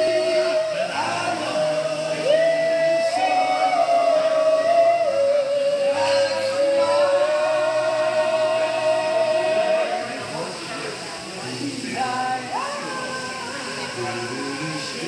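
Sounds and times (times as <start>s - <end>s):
men singing in harmony: 0.0s - 15.0s.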